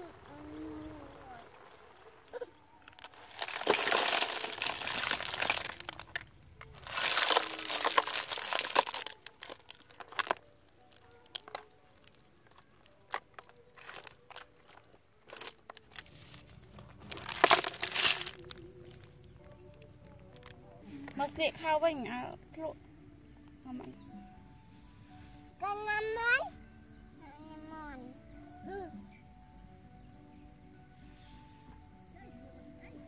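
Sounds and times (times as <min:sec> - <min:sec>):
snail shells clattering in colander: 0:02.9 - 0:20.6.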